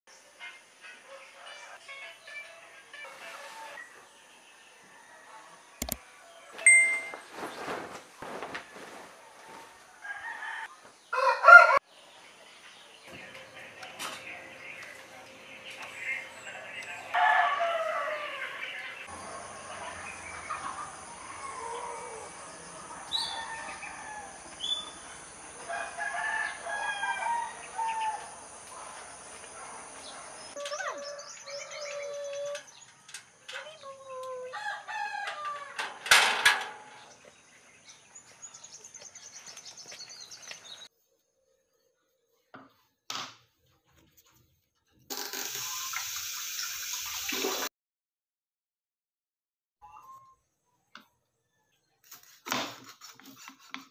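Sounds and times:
roosters crowing: 0:09.2 - 0:11.9, 0:17.1 - 0:28.6, 0:30.0 - 0:33.2, 0:34.4 - 0:37.2
birds calling: 0:11.0 - 0:25.5.

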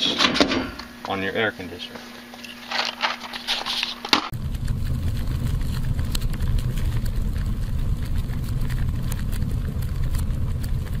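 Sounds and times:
flames burning with crackles: 0:03.5 - 0:11.0.

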